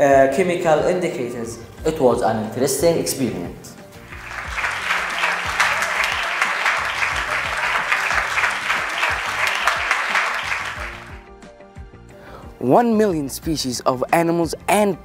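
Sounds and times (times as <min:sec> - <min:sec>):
quiet music: 0:00.0 - 0:15.0
crowd applauding: 0:04.0 - 0:11.2.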